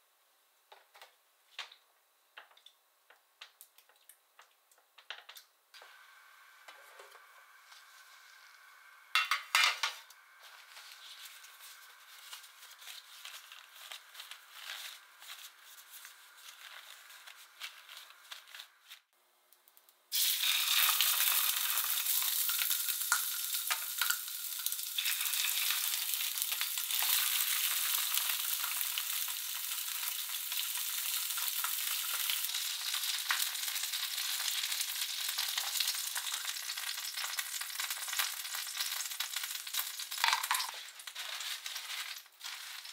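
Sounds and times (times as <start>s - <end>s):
fish sizzling in hot oil: 7.3s - 18.8s, 20.1s - 42.9s.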